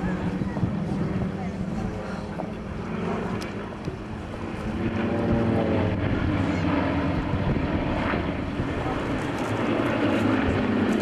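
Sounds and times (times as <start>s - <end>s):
aircraft engines droning overhead: 0.0s - 11.0s
wind buffeting microphone: 0.0s - 11.0s.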